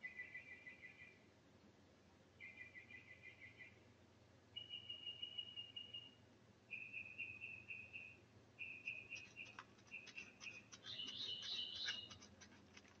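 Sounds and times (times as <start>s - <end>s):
high chirping: 4.6s - 13.0s
claws scratching dirt and leaves: 8.8s - 13.0s.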